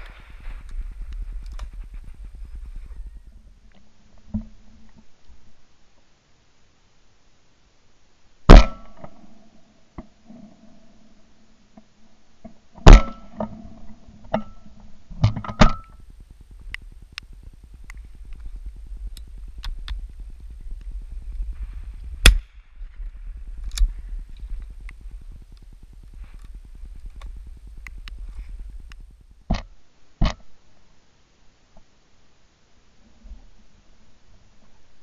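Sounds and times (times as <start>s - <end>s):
low wind rumble: 0.0s - 5.7s, 13.5s - 29.5s
shotgun shots: 8.5s - 9.0s, 12.9s - 13.2s
faint sharp cracks: 15.2s - 30.5s.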